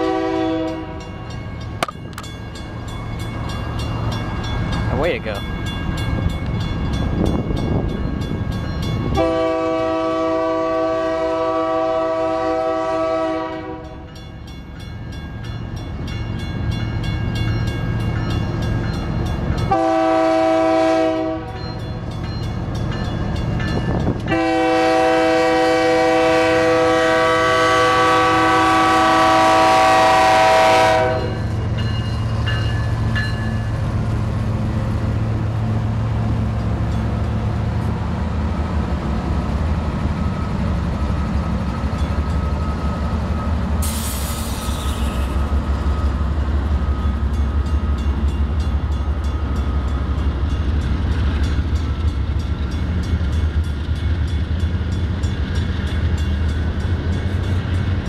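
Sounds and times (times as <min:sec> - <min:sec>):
locomotive air horn: 0:00.0 - 0:01.0, 0:09.2 - 0:14.1, 0:19.7 - 0:21.6, 0:24.3 - 0:31.5
locomotive rumble passing: 0:00.0 - 0:58.0
crossing signal bell ringing: 0:00.6 - 0:09.4, 0:13.8 - 0:20.1, 0:21.4 - 0:24.6, 0:31.1 - 0:33.9, 0:44.8 - 0:58.0.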